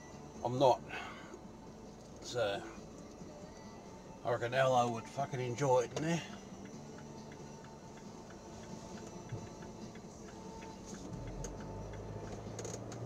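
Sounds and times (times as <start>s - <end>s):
car engine idling: 0.0s - 13.0s
turn indicator ticking: 4.4s - 13.0s
passing bus rumble: 6.2s - 13.0s.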